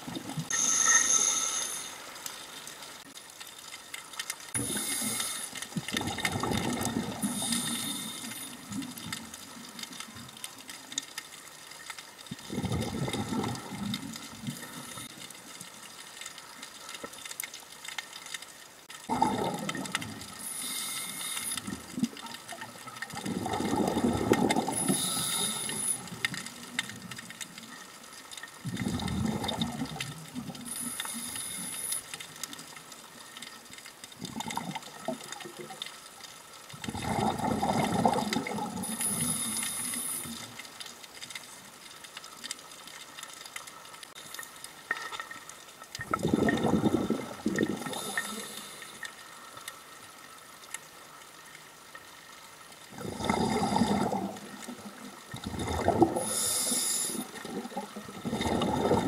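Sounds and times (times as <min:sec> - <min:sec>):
regulator hiss: 0:00.5 - 0:02.5, 0:04.6 - 0:05.7, 0:07.1 - 0:08.7, 0:20.3 - 0:21.8, 0:24.7 - 0:26.3, 0:30.6 - 0:32.2, 0:38.8 - 0:40.6, 0:47.9 - 0:49.2, 0:56.2 - 0:57.4
bubbles rushing and gurgling: 0:04.5 - 0:10.5, 0:12.2 - 0:15.1, 0:19.0 - 0:20.8, 0:21.6 - 0:27.6, 0:28.6 - 0:31.0, 0:34.2 - 0:35.9, 0:36.7 - 0:40.6, 0:45.9 - 0:48.7, 0:52.8 - 0:59.0.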